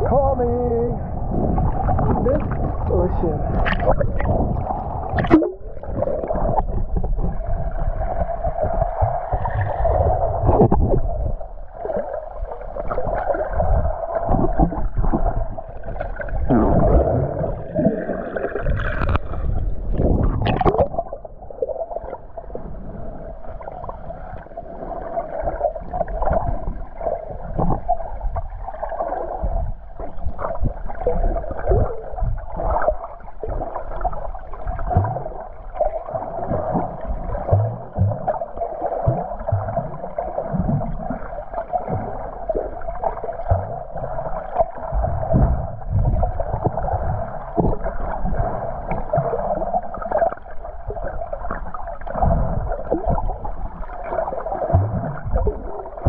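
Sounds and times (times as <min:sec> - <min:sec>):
underwater hum: 0:00.0 - 0:56.0
underwater water surge thumps: 0:01.2 - 0:11.6, 0:14.2 - 0:22.3, 0:34.6 - 0:41.2, 0:41.8 - 0:49.4, 0:52.0 - 0:56.0.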